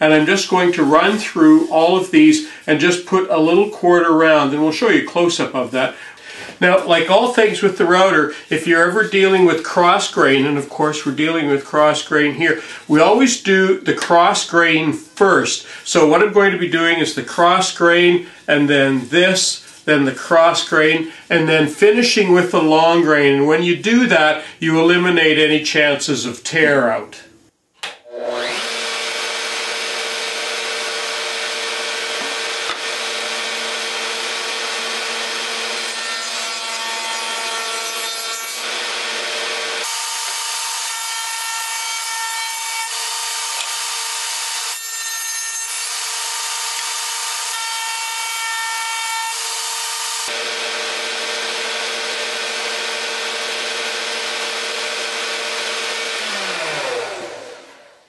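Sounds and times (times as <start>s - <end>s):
router humming: 27.8s - 58.0s.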